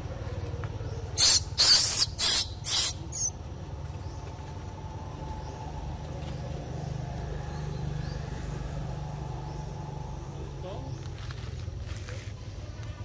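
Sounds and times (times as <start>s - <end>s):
dry leaves rustling: 10.8s - 13.0s.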